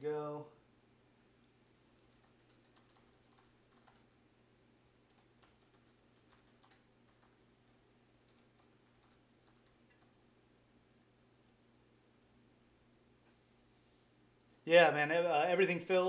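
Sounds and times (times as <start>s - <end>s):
low room hum: 0.0s - 16.0s
keyboard keys clicking: 2.1s - 4.1s, 5.1s - 7.4s, 8.2s - 10.1s.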